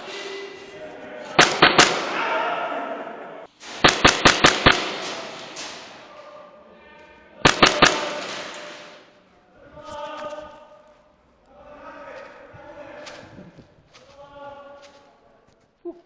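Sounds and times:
airsoft gun firing sharp cracks: 1.4 - 2.2, 3.6 - 5.8, 7.4 - 9.0.

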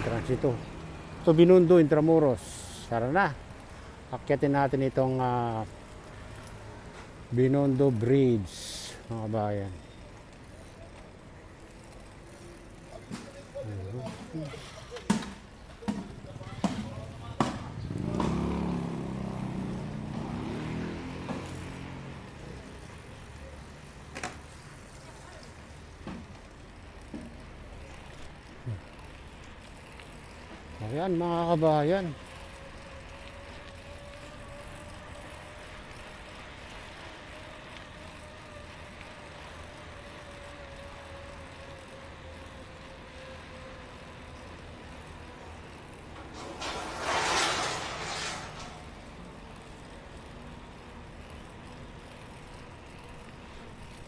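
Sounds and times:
vehicle and machinery noise: 0.0 - 54.0
forklift driving past: 17.8 - 23.5, 31.8 - 53.6.

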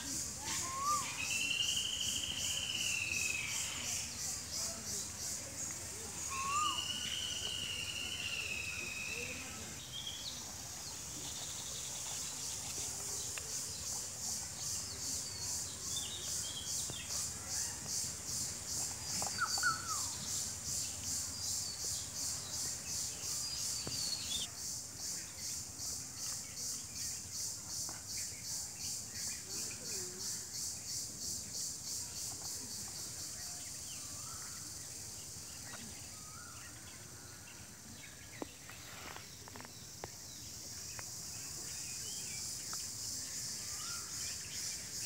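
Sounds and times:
insects chirping in pulses: 0.0 - 27.8.

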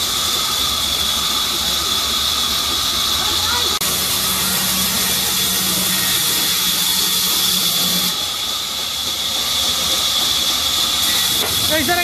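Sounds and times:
band saw cutting wood: 3.8 - 8.4, 10.0 - 12.0.

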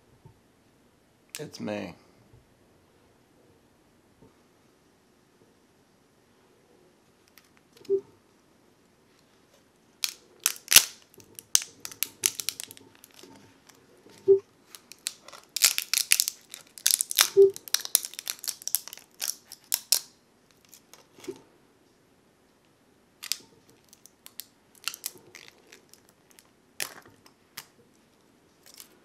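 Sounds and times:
plastic snapping and crackling: 10.0 - 13.8, 14.7 - 21.4, 23.2 - 27.8.

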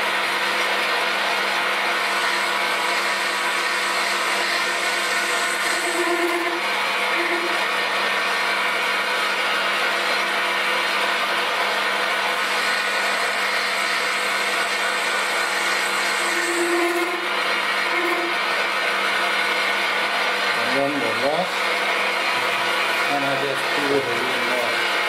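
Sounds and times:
metal lathe whine: 0.0 - 25.0
stronger machine hum: 5.6 - 7.9.

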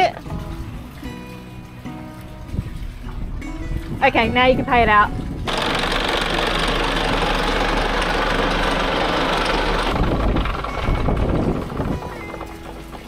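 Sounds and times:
low uneven rumble: 0.3 - 13.0
anchor chain running out: 5.5 - 13.0.

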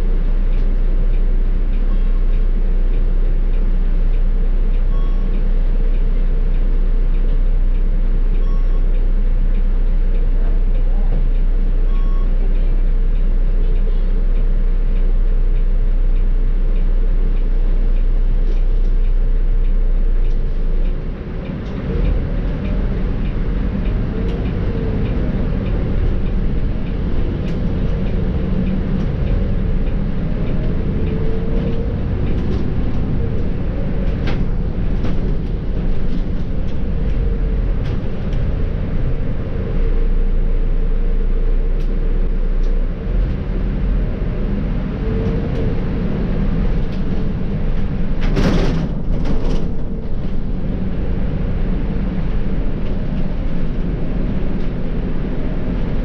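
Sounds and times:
bus diesel engine drone: 0.0 - 56.0
road rumble: 0.0 - 56.0.

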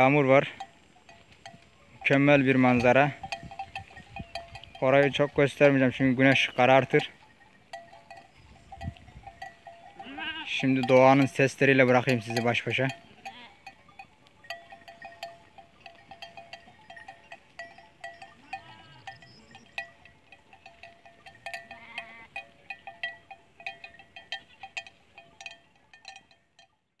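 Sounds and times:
sheep bells clinking: 0.0 - 27.0
sheep bleating: 9.9 - 10.9, 11.8 - 13.8, 18.2 - 19.7, 21.4 - 22.6.

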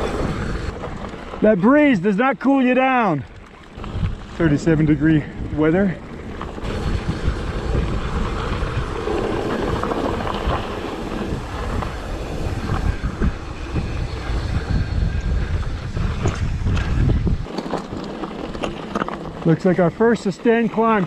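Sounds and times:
bike rattling over bumps: 0.0 - 21.0
tyres rumbling on loose dirt: 0.0 - 21.0.

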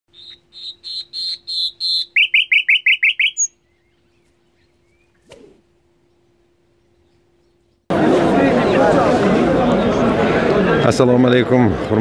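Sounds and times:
nightingale singing: 0.1 - 5.3.

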